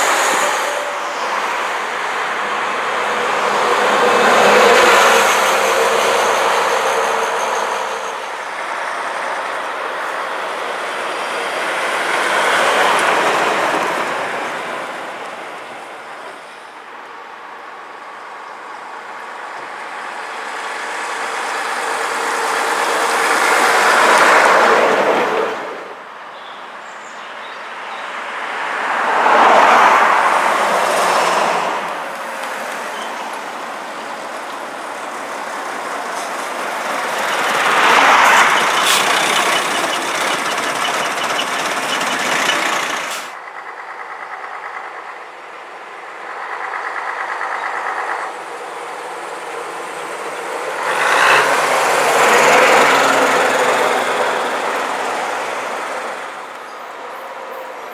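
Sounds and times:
diesel buses driving past: 0:00.0 - 0:57.9
tyre noise on road: 0:28.4 - 0:56.9.

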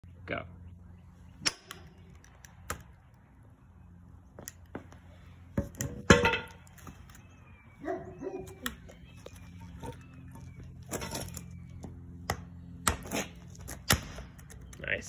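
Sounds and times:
axe banging on concrete: 0:05.6 - 0:06.6, 0:12.3 - 0:14.5.

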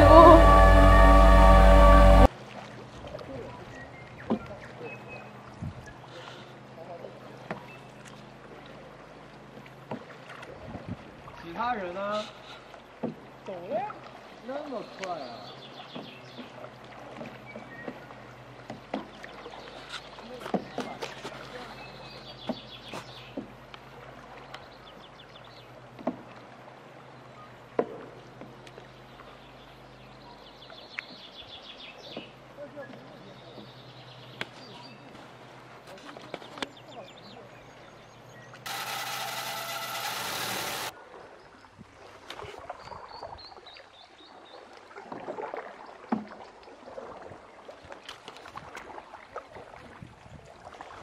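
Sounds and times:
paddle strokes: 0:00.0 - 0:27.0, 0:38.7 - 0:41.0, 0:44.6 - 0:51.0
faint water noise: 0:00.0 - 0:51.0
paddles knocking on canoe hull: 0:13.0 - 0:13.2, 0:15.9 - 0:19.3, 0:22.4 - 0:23.6.

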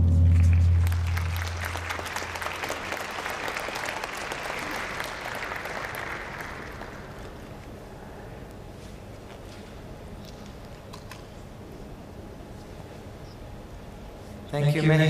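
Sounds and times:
low boom: 0:00.0 - 0:01.7
audience applauding: 0:00.2 - 0:07.5.

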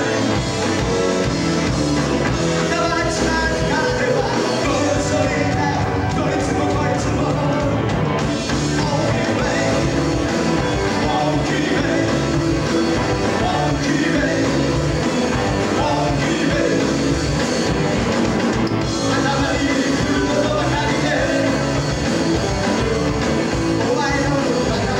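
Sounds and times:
rock band with electric guitars: 0:00.0 - 0:24.9
person singing: 0:02.4 - 0:07.9, 0:08.5 - 0:17.2, 0:18.8 - 0:22.0, 0:23.7 - 0:24.9.

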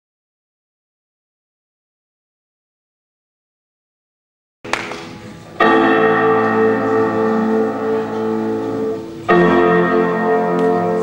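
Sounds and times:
piano chords ringing: 0:05.0 - 0:11.0.

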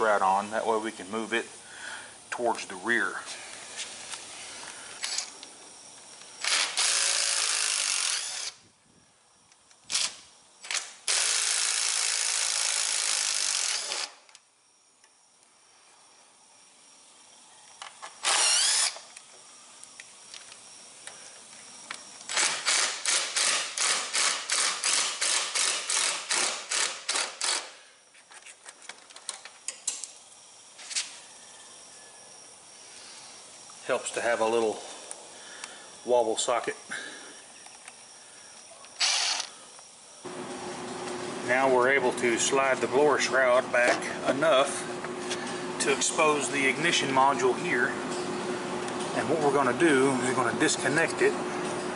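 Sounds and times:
cordless drill spinning out screws: 0:05.0 - 0:05.4, 0:06.4 - 0:08.6, 0:09.8 - 0:14.4, 0:17.8 - 0:19.3, 0:21.4 - 0:27.8, 0:38.9 - 0:39.6.

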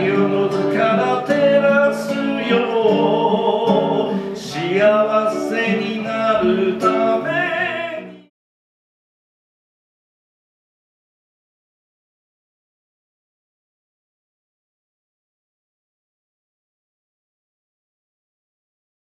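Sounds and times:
acoustic guitar: 0:00.0 - 0:08.3
man singing: 0:00.0 - 0:08.3.

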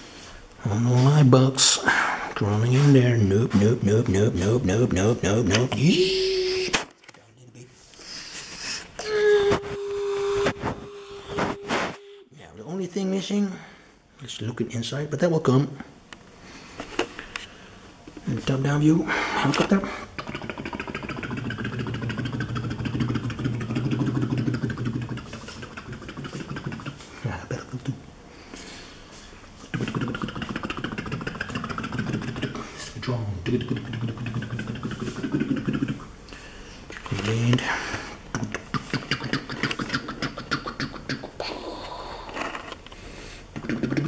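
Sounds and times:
man imitating helicopter: 0:02.8 - 0:06.8, 0:20.2 - 0:27.0, 0:29.8 - 0:36.1.

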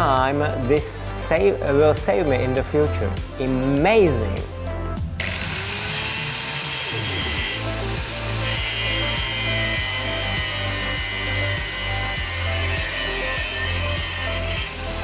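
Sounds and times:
background music: 0:00.0 - 0:15.0
angle grinder cutting steel tube: 0:05.2 - 0:15.0.

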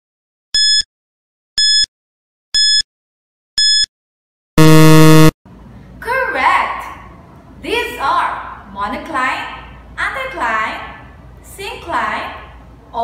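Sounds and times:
short high electronic beeps: 0:04.6 - 0:05.3
low buzzer tone: 0:04.6 - 0:05.4.

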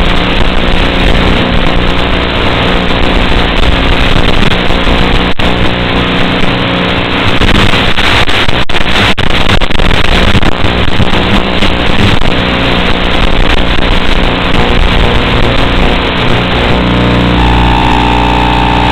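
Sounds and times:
quadcopter high buzz: 0:16.4 - 0:18.9.

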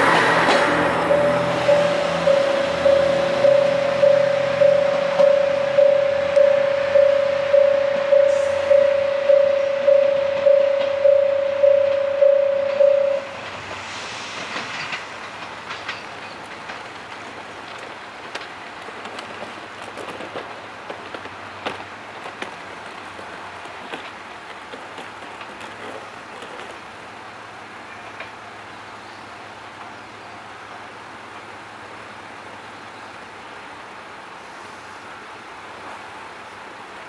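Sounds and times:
wheels clicking over rail joints: 0:00.0 - 0:28.4
train running: 0:00.0 - 0:37.0.

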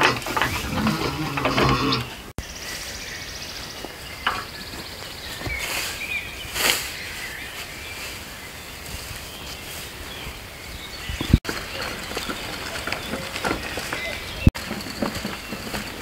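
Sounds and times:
outdoor background noise: 0:00.0 - 0:16.0
rake scratching through grass: 0:05.3 - 0:10.1.

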